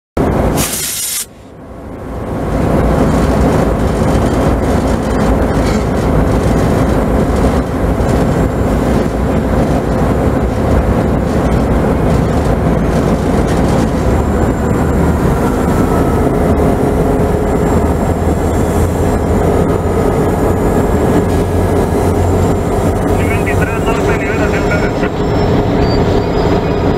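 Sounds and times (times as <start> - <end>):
diesel locomotive drone: 0.2 - 26.9
train rolling slowly: 0.2 - 26.9.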